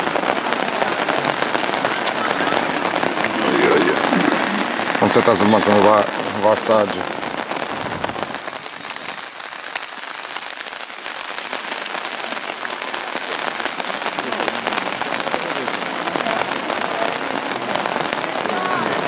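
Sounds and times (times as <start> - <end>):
raindrops hitting near microphone: 0.0 - 19.0
steady rain falling: 0.0 - 19.0.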